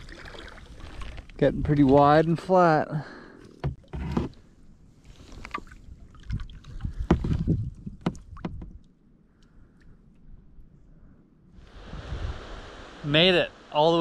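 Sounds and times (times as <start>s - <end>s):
paddle splashes and drips: 0.0s - 2.5s, 3.4s - 9.0s.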